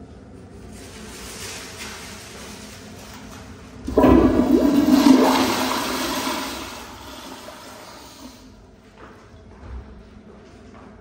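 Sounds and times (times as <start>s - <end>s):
toilet flushing water rush: 3.9s - 8.5s.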